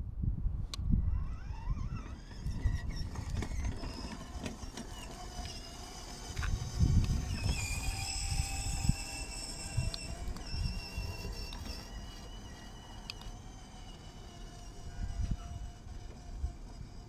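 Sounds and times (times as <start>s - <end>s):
wind rumbling on microphone: 0.0s - 17.0s
toy car electric motors whining: 1.0s - 17.0s.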